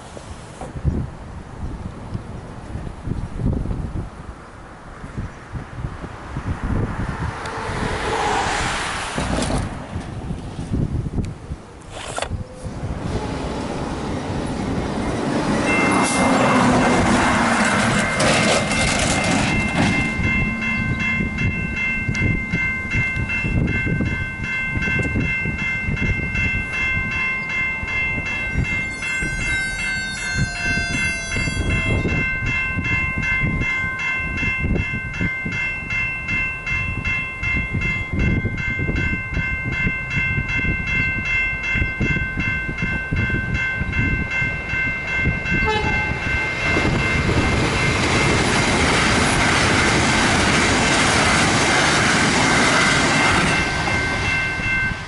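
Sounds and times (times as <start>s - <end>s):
level crossing warning bells: 12.4s - 55.0s
boom gates squealing: 28.9s - 32.1s.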